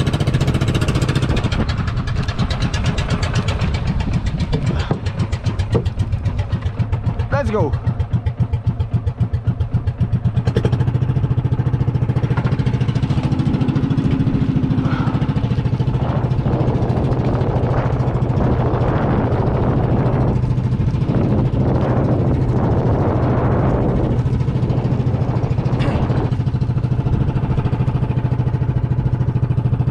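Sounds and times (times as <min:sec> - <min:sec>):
boat engine chugging: 0:00.0 - 0:29.9
rushing water and wind: 0:10.0 - 0:29.9.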